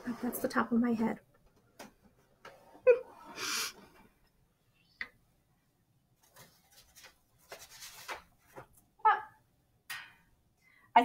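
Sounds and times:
papers and objects being moved: 6.2s - 8.9s.

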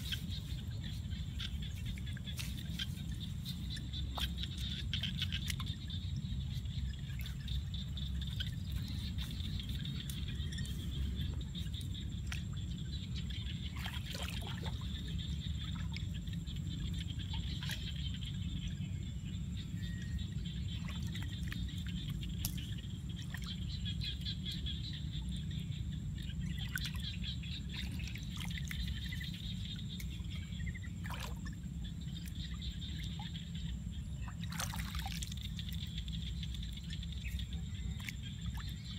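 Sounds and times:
steady low rumble: 0.0s - 38.9s.

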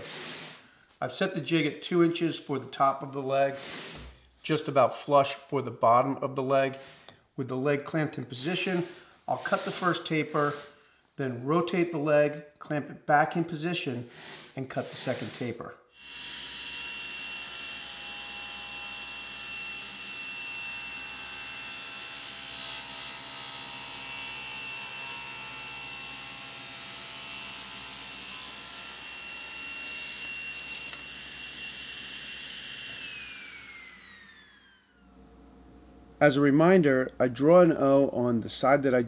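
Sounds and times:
table saw motor and blade whine: 16.0s - 35.2s
saw blade spinning down: 30.1s - 35.0s.

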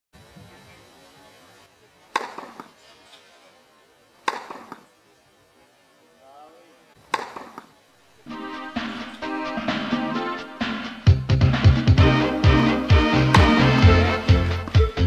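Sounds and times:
tennis ball struck by racket: 2.1s - 2.8s, 4.2s - 4.9s, 7.1s - 7.7s, 13.2s - 14.0s.

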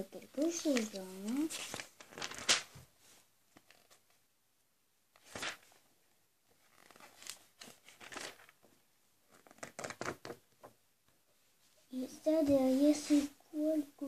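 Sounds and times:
magazine pages rustling: 0.4s - 4.2s, 5.2s - 5.8s, 6.6s - 10.4s.

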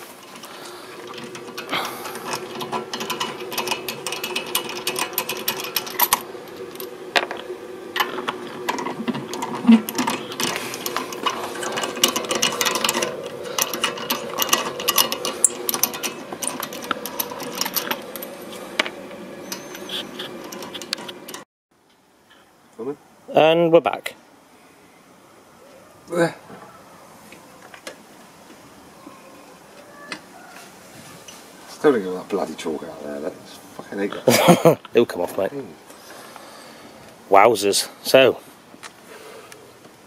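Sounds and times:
hand ratchet clicking: 0.2s - 6.2s.

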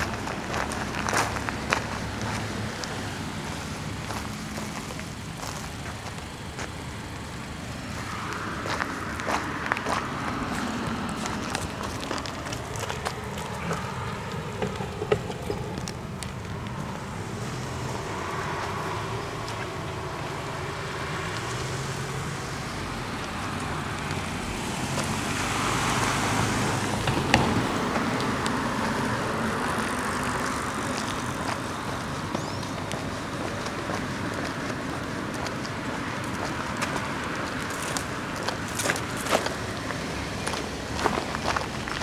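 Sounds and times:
footsteps: 0.0s - 6.8s, 7.8s - 20.3s, 23.1s - 42.0s
steady traffic hum: 0.0s - 42.0s
vehicle passing: 0.0s - 42.0s.

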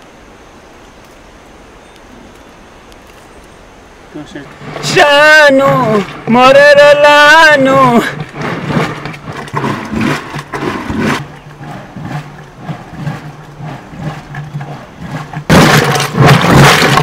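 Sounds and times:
steady low hum: 0.0s - 17.0s
wooden pole strokes in vessel: 4.5s - 6.4s, 7.3s - 17.0s.

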